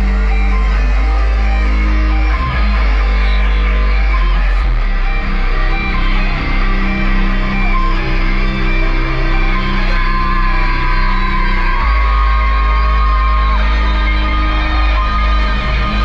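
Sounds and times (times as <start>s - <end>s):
loud electronic music with bass: 0.0s - 16.0s.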